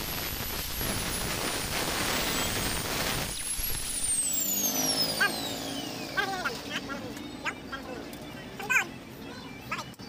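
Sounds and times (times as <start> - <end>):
angle grinder cutting metal: 0.0 - 7.1
grinder disc spinning down: 0.0 - 7.2.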